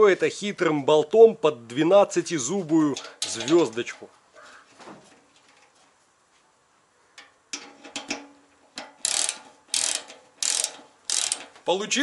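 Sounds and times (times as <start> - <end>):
ratchet wrench ratcheting: 8.8 - 11.6.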